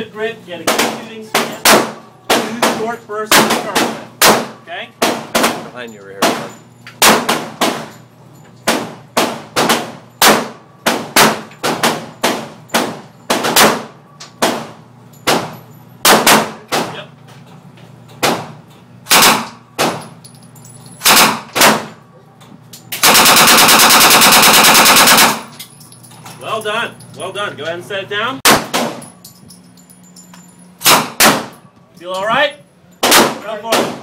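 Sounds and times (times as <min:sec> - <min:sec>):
gunshots echoing indoors: 0:08.7 - 0:17.0, 0:19.1 - 0:20.0, 0:21.0 - 0:22.0, 0:23.0 - 0:25.6, 0:30.8 - 0:31.6, 0:33.0 - 0:34.0
automatic gunfire burst: 0:19.1 - 0:19.9, 0:21.0 - 0:21.9, 0:23.0 - 0:25.5.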